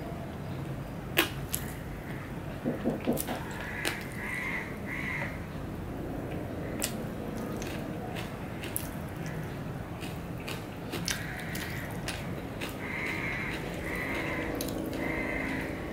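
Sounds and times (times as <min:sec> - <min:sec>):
wet chewing and lip smacks: 0:06.8 - 0:15.7.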